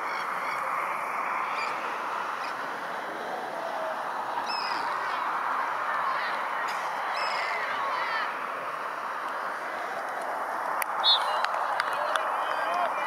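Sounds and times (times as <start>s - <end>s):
outdoor background murmur: 0.0s - 13.0s
distant shouts: 3.2s - 9.9s, 10.8s - 13.0s.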